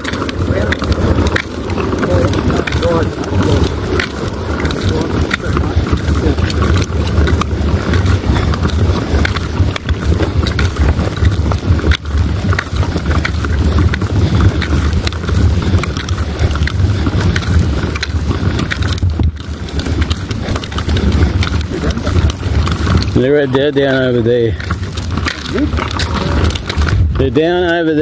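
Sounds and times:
handling clicks and knocks: 0:00.0 - 0:28.0
wind buffeting microphone: 0:00.0 - 0:28.0.

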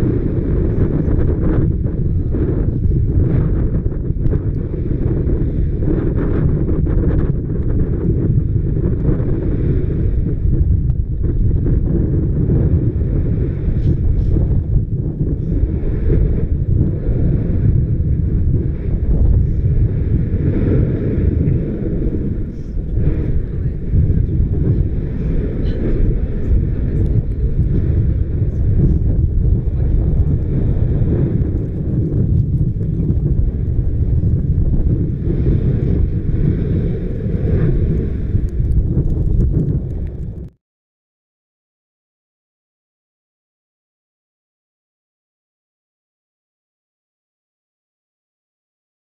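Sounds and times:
volcano vent rumbling: 0:00.0 - 0:40.6
wind buffeting microphone: 0:00.0 - 0:40.6
lava spattering: 0:26.4 - 0:40.5.

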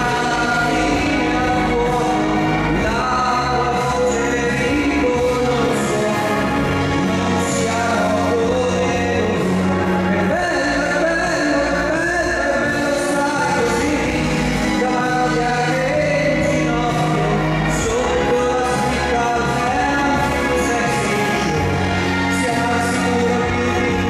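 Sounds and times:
amplified instrumental music: 0:00.0 - 0:24.0
held bass notes: 0:00.0 - 0:24.0
man singing into microphone: 0:00.0 - 0:24.0.

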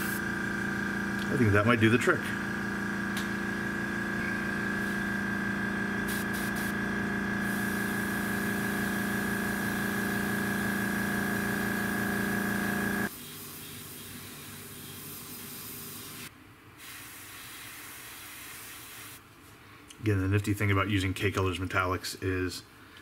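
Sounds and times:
air compressor humming: 0:00.0 - 0:16.3
soft hiss of air: 0:13.1 - 0:20.0.

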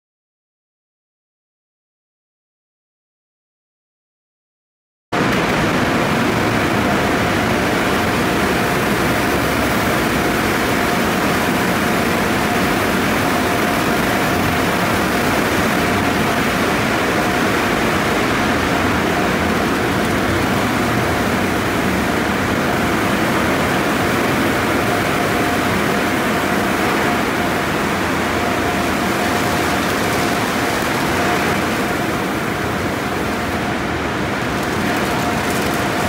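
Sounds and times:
faint machine whine: 0:05.2 - 0:36.0
water spraying: 0:26.0 - 0:33.6.

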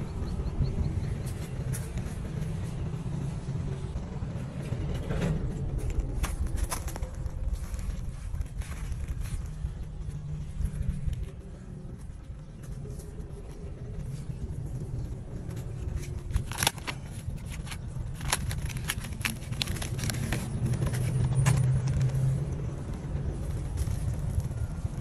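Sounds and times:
low rumble: 0:00.0 - 0:25.0
soil crunching and crackling: 0:04.6 - 0:25.0.

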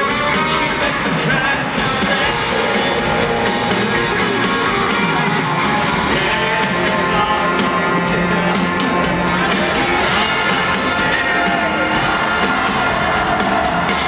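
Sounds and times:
man singing: 0:00.0 - 0:03.4, 0:06.0 - 0:13.6
live country band with guitars: 0:00.0 - 0:14.0.

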